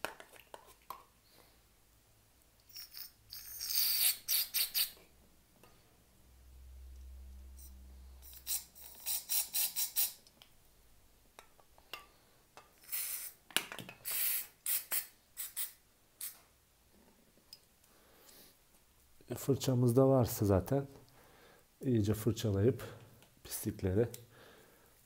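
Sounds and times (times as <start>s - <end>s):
aerosol can hissing: 3.4s - 5.0s, 8.2s - 10.2s, 12.8s - 13.4s, 14.0s - 16.4s.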